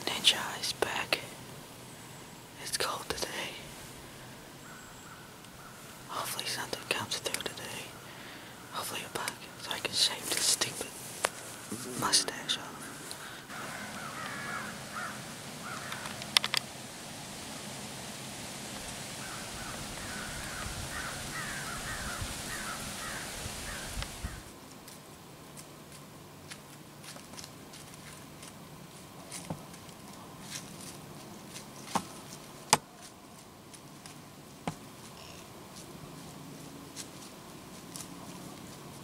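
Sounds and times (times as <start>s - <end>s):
steady hiss: 0.0s - 39.0s
crows cawing: 4.6s - 5.9s, 13.1s - 16.2s, 19.2s - 24.5s.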